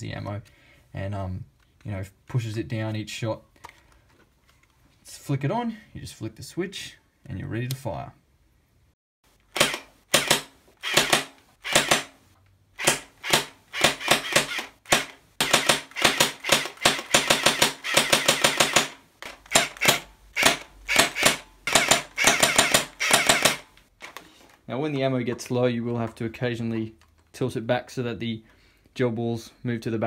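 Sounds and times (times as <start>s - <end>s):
gel ball blaster firing: 9.5s - 12.1s, 12.8s - 23.7s.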